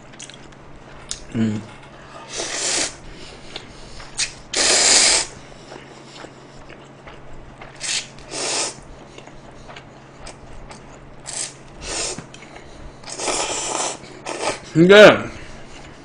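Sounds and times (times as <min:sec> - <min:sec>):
person slurping noodles: 0:02.2 - 0:03.0, 0:04.2 - 0:05.4, 0:07.8 - 0:08.8, 0:11.2 - 0:12.3, 0:13.1 - 0:14.7.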